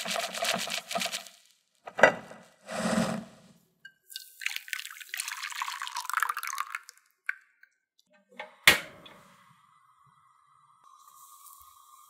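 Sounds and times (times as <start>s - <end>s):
liquid pouring into saucepan: 4.1s - 7.4s.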